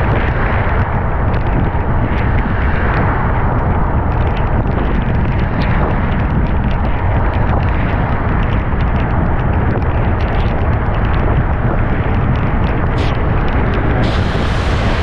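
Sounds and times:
heavy rain rushing: 13.0 - 15.0.

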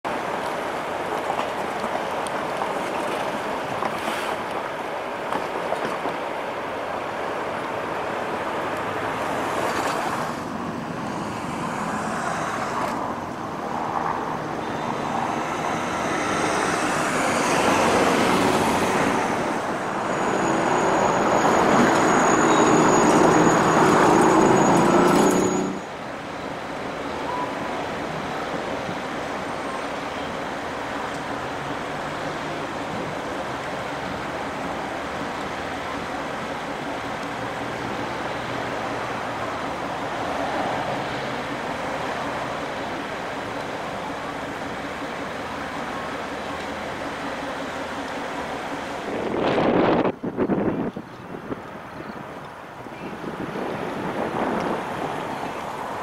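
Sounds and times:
traffic noise: 0.0 - 56.0
light-rail cars rolling on track: 0.1 - 56.0
thin high whine: 11.0 - 26.0.

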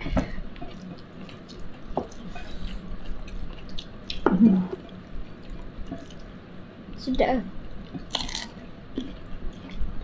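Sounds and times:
wet chewing sounds: 0.6 - 6.4, 7.8 - 10.0.

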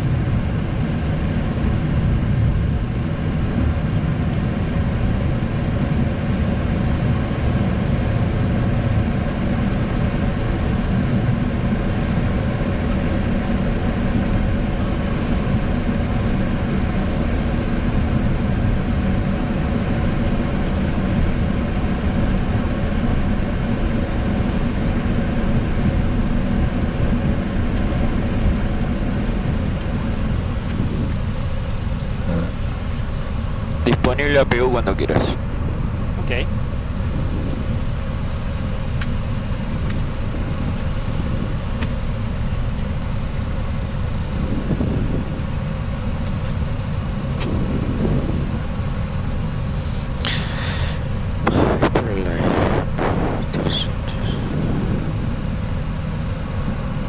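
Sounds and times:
jet engines idling: 0.0 - 57.0
even hiss: 48.6 - 55.5.

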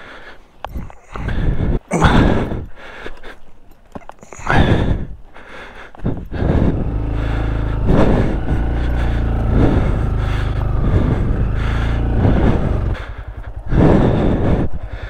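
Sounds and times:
motorcycle engine running: 6.1 - 15.0.

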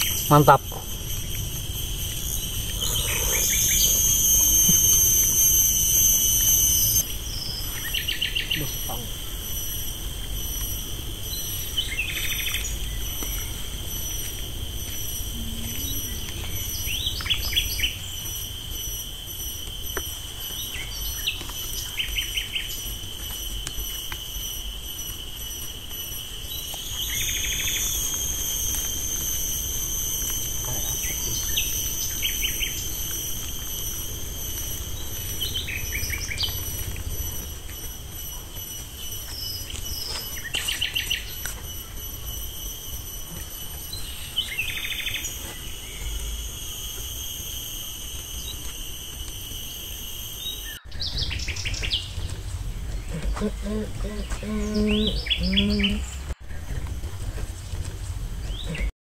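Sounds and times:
birds chirping: 0.0 - 18.9, 50.0 - 56.8
insects droning: 0.0 - 58.9.

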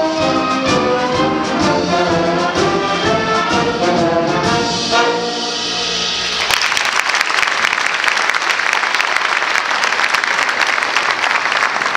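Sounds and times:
brass band chord: 0.0 - 6.4
audience applauding: 6.2 - 11.9.

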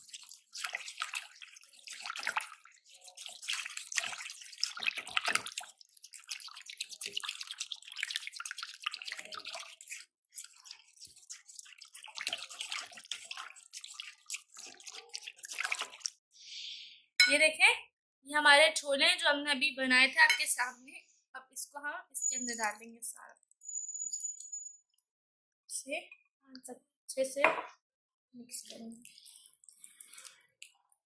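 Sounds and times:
whisk beating in glass bowl: 0.0 - 16.1.

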